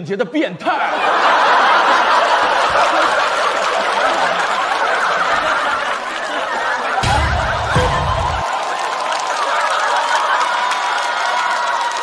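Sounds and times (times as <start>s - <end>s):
audience laughing: 0.8s - 8.5s.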